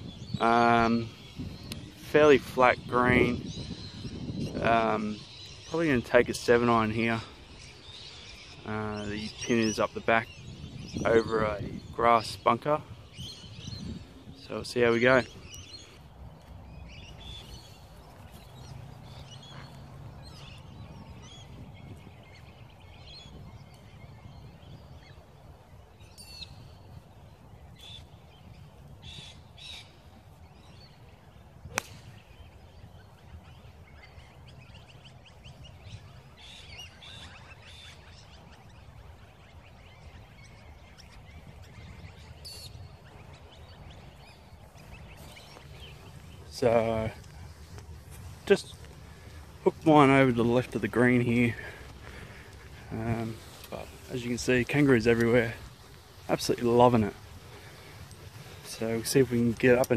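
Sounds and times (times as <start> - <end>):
birds calling and chirping: 0.0 - 59.9
golf club striking ball: 31.7 - 32.2.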